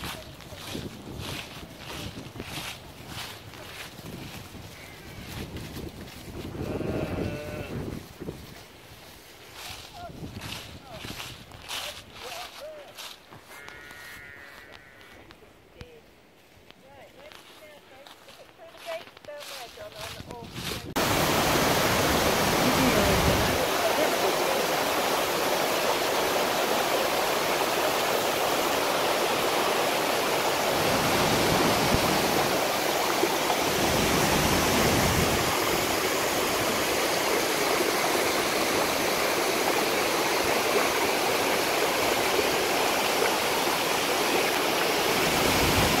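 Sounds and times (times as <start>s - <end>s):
water rushing over boulders: 20.9s - 46.0s.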